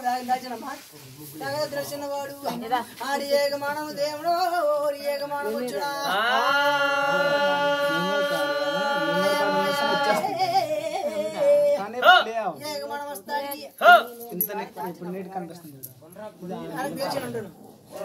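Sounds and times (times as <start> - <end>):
lower wavering voice: 6.1 - 11.1
person singing a long held note: 6.1 - 11.4.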